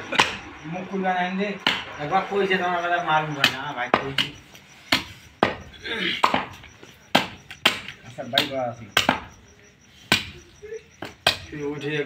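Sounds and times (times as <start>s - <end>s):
cleaver chopping meat on wood: 1.6s - 1.9s, 3.4s - 9.3s, 10.1s - 10.4s.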